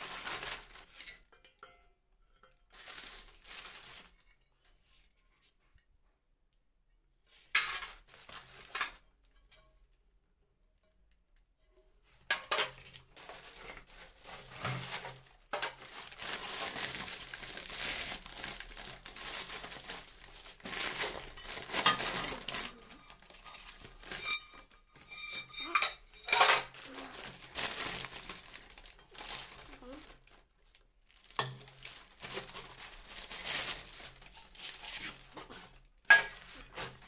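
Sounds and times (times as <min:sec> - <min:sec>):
plastic wrap crinkling: 0:00.0 - 0:01.3, 0:02.7 - 0:04.4, 0:07.8 - 0:09.0, 0:12.6 - 0:37.0.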